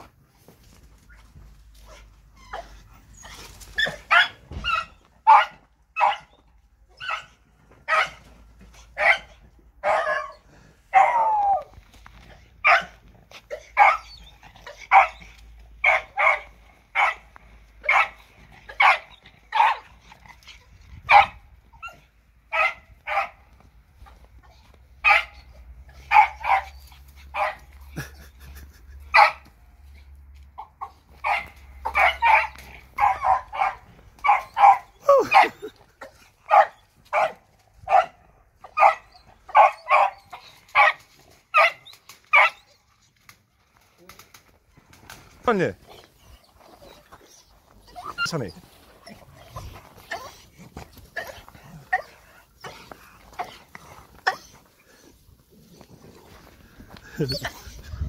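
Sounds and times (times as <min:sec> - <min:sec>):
dog barking: 0:05.2 - 0:06.4, 0:07.9 - 0:08.2, 0:09.0 - 0:11.3, 0:12.6 - 0:13.0, 0:14.9 - 0:15.2, 0:15.8 - 0:17.2, 0:17.8 - 0:18.2, 0:18.8 - 0:19.8, 0:21.1 - 0:21.4, 0:22.5 - 0:23.4, 0:25.0 - 0:25.4, 0:26.0 - 0:26.7, 0:31.2 - 0:35.6, 0:36.5 - 0:40.2.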